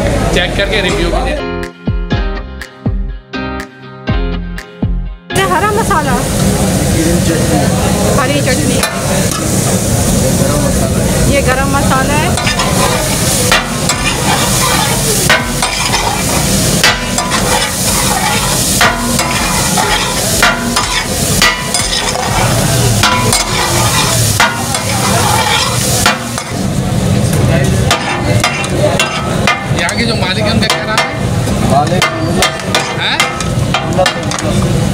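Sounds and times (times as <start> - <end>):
food sizzling: 5.4 - 34.9
metal spatulas clacking on iron griddle: 8.8 - 9.4, 12.3 - 26.6, 27.9 - 34.7.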